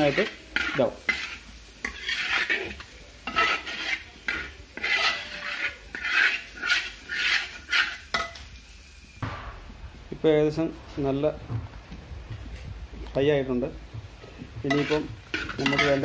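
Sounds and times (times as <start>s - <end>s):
utensil scraping a pan: 0.0s - 8.4s, 14.2s - 16.0s.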